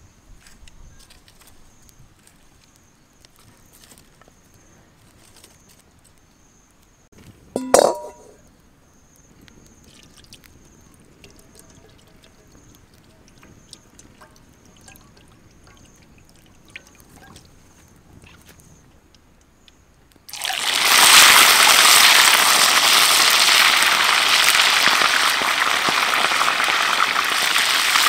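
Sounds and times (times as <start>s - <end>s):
wood fire crackling: 1.0s - 28.0s
liquid pouring into wok: 7.6s - 8.3s, 20.3s - 24.6s
metal wok clanking on stones: 7.6s - 8.4s.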